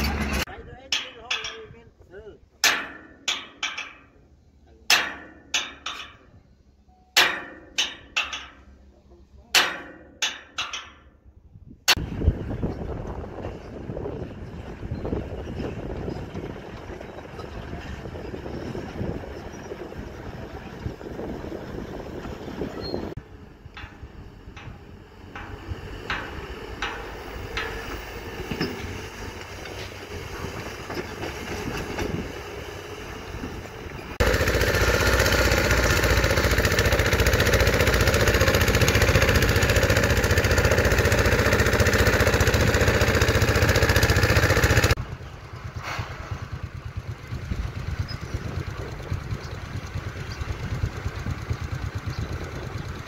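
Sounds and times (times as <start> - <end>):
engine rumble: 0.0 - 53.0
sledgehammer ringing on steel: 2.6 - 4.1, 7.1 - 8.7, 9.6 - 11.1
wind noise: 11.4 - 26.7, 30.0 - 34.2, 44.9 - 53.0.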